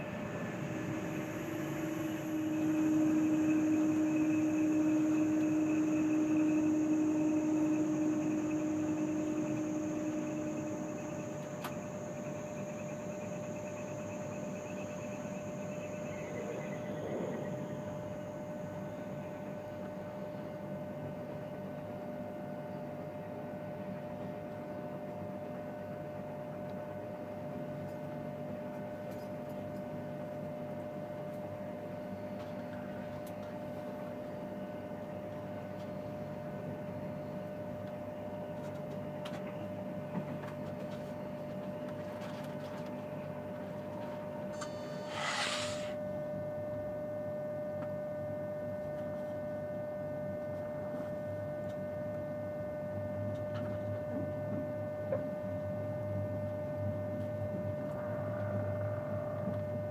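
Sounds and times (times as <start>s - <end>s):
train carriage hum and rumble: 0.0s - 22.0s, 25.5s - 46.0s, 56.6s - 59.9s
train equipment whine: 0.0s - 22.1s, 31.4s - 46.9s, 55.8s - 59.9s
short rushing burst: 44.6s - 46.0s.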